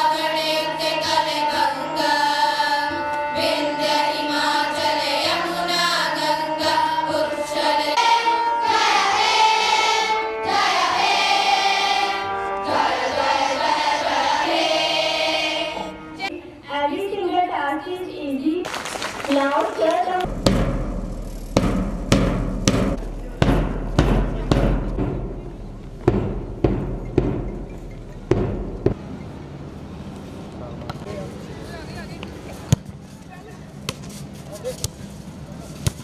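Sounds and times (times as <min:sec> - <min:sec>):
girls choir singing through microphones: 0:00.0 - 0:16.3.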